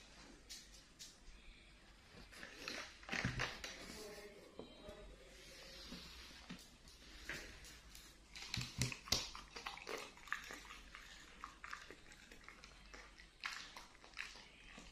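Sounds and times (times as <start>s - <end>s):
dog chewing: 8.3s - 14.9s.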